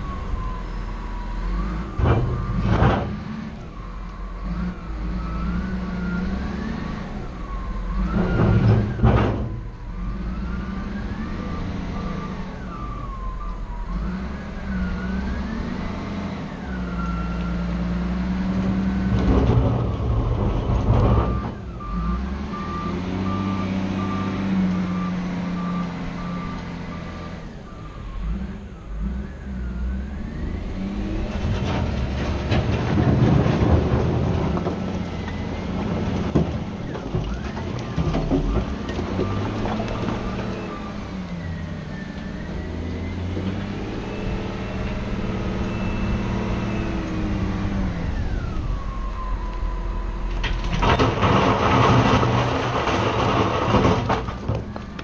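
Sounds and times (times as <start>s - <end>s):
diesel loader engines revving: 0.0s - 55.0s
reversing alarm beeping: 21.1s - 31.7s, 40.0s - 50.6s.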